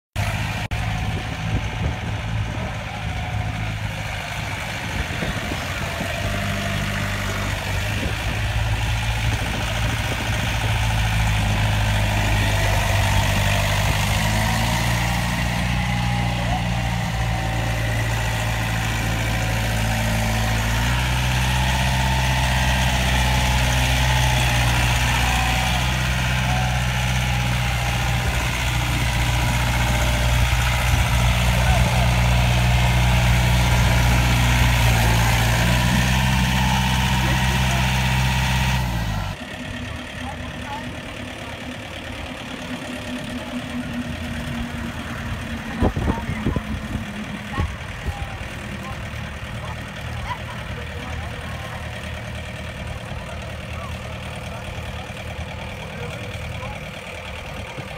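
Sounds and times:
tractor diesel engine running: 0.1 - 57.9.

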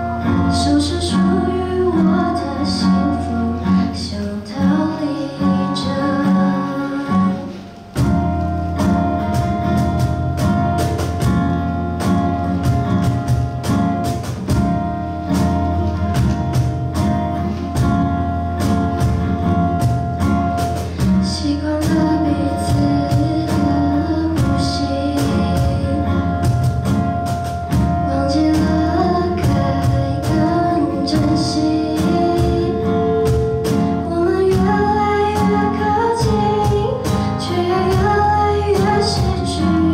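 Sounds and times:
woman singing into microphone: 0.0 - 7.7, 21.0 - 26.8, 27.7 - 39.9
cajon beat: 0.0 - 39.9
strummed acoustic guitar: 0.0 - 39.9.

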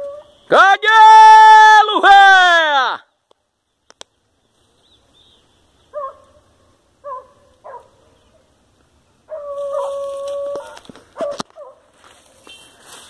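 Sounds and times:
dog barking: 5.9 - 6.4, 7.0 - 8.0, 9.3 - 10.0, 10.6 - 11.9
dog baying: 9.3 - 11.8.

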